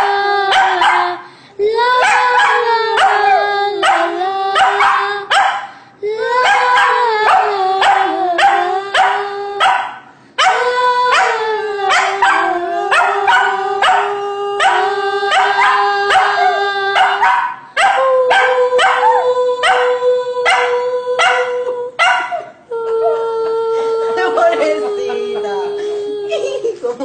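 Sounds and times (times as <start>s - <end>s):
dog howling: 0.0s - 1.2s, 1.8s - 5.6s, 6.2s - 26.0s
dog barking quickly: 0.5s - 1.2s, 2.0s - 5.7s, 6.4s - 11.3s.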